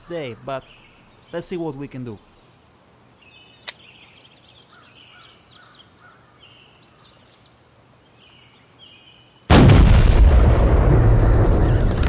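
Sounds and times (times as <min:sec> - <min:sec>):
birds chirping: 0:00.0 - 0:09.5
pistol blast: 0:09.5 - 0:11.1.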